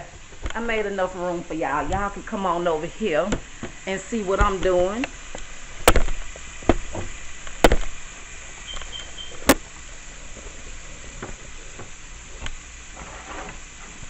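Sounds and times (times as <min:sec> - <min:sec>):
chicken wings sizzling: 0:00.0 - 0:14.0
sharp knocks: 0:05.8 - 0:08.0.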